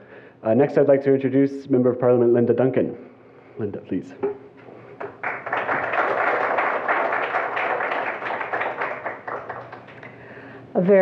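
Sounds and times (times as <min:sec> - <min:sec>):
audience applauding: 0:04.8 - 0:10.0.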